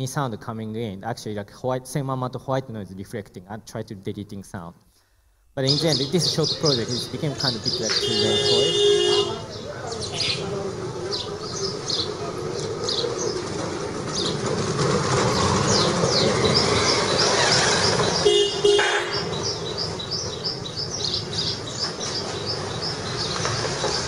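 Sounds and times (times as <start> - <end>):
birds chirping: 5.6 - 24.0
vehicle horn toot: 7.4 - 9.6, 18.2 - 19.4.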